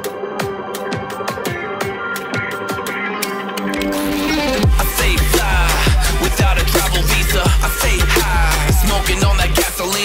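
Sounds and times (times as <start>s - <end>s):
electronic music: 0.0s - 10.0s
deep sliding bass hits: 4.6s - 9.6s.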